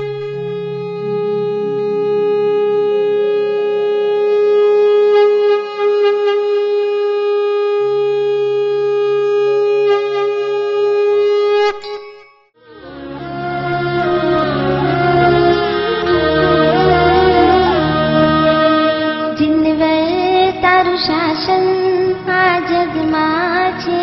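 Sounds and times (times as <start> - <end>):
low pulsing notes: 0.0 - 4.9, 12.6 - 20.4
reedy wind instrument tone: 0.0 - 11.8, 12.6 - 21.0.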